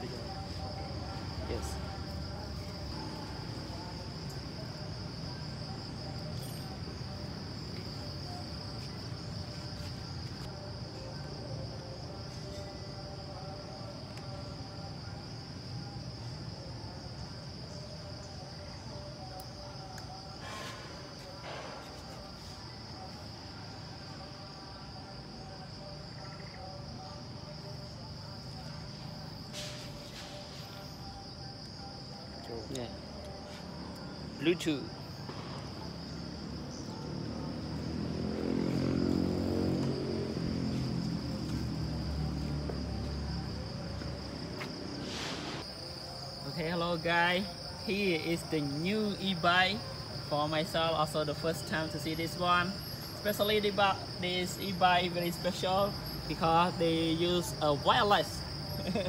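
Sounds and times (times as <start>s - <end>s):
high-pitched insect chorus: 0.0s - 59.0s
rustle: 29.5s - 30.8s, 45.0s - 45.6s.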